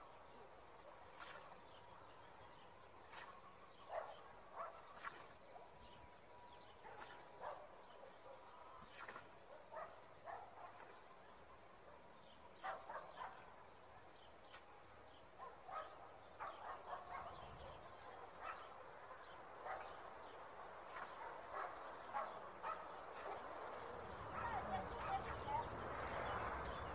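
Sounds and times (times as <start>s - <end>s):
distant dog barking: 3.8s - 5.8s, 6.8s - 8.6s, 9.5s - 11.0s, 12.6s - 13.6s, 15.4s - 20.2s, 20.8s - 25.8s.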